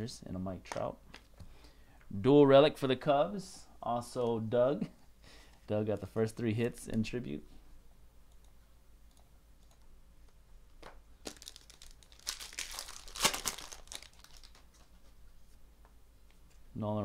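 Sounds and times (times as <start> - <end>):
foil wrapper tearing and crinkling: 11.3 - 14.9.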